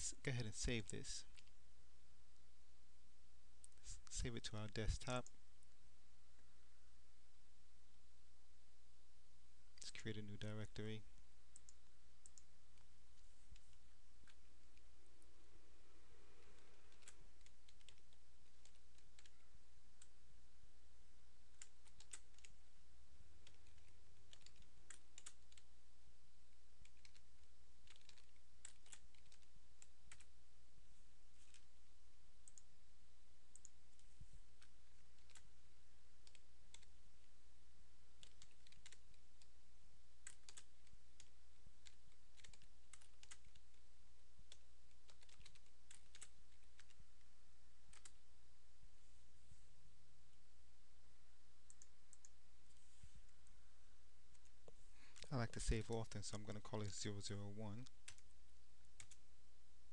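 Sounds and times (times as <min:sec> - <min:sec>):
keyboard typing: 0:11.5 - 0:12.9, 0:16.6 - 0:19.4, 0:21.5 - 0:22.6, 0:23.4 - 0:25.7, 0:26.8 - 0:30.3, 0:31.4 - 0:31.7, 0:32.4 - 0:32.7, 0:33.5 - 0:35.5, 0:36.2 - 0:37.0, 0:38.2 - 0:39.5, 0:40.2 - 0:43.8, 0:44.5 - 0:47.0, 0:47.9 - 0:48.2, 0:51.6 - 0:52.4, 0:57.8 - 0:58.3, 0:59.0 - 0:59.2.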